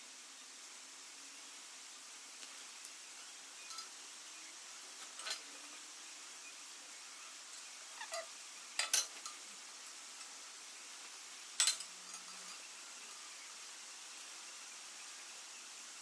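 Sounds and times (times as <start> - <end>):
steel bar clinking against metal: 3.7 - 3.9, 8.8 - 9.4, 11.6 - 12.6.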